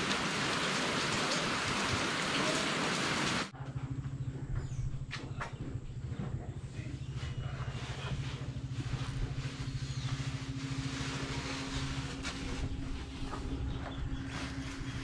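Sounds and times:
motor humming: 0:03.3 - 0:15.0.

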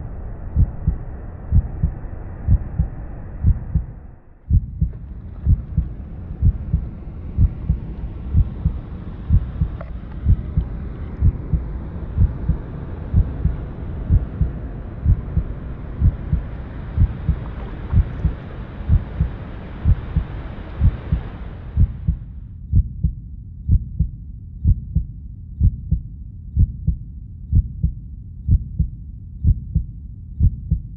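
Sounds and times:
hiss in soundtrack: 0:00.0 - 0:04.4, 0:05.0 - 0:22.4
low thumping beat: 0:00.0 - 0:30.9.

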